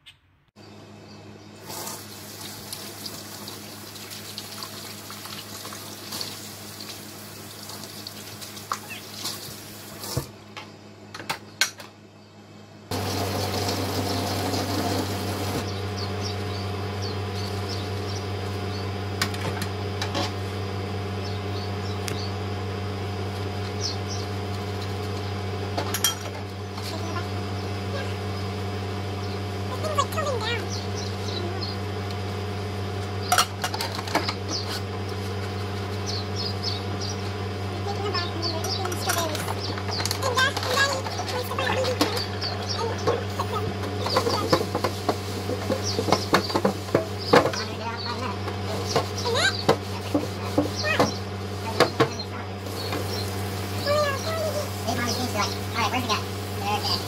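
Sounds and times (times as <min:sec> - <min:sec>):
steady low hum: 0:00.6 - 0:57.0
water running from tap: 0:01.6 - 0:10.1, 0:12.9 - 0:15.6.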